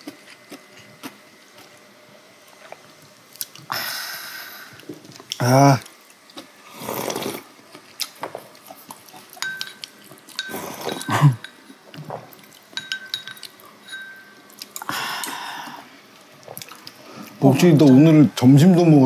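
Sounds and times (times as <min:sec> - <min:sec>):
slurping soup: 0:06.7 - 0:07.5
spoons clinking against bowls: 0:09.4 - 0:11.7, 0:12.7 - 0:14.6, 0:17.6 - 0:18.2.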